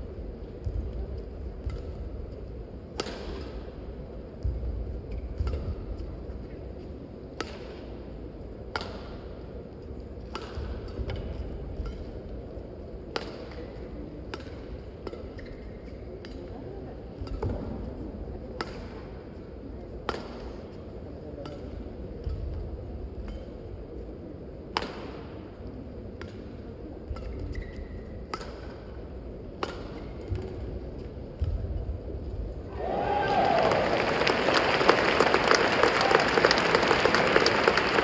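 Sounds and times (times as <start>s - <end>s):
low hum of hall: 0.0s - 38.0s
rackets striking shuttlecock: 0.6s - 6.4s, 7.2s - 16.5s, 18.5s - 19.2s, 20.0s - 20.6s, 24.7s - 25.5s, 26.2s - 31.9s.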